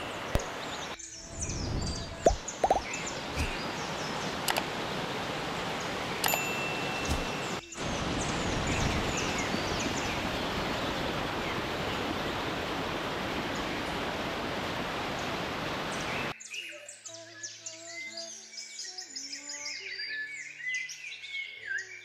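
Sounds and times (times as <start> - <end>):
waterfall rushing: 0.0 - 16.3
birds chirping: 0.0 - 16.9
music: 16.4 - 22.0.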